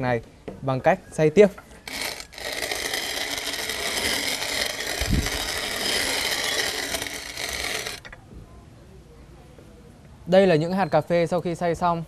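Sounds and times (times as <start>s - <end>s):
hand coffee grinder grinding: 1.8s - 8.2s.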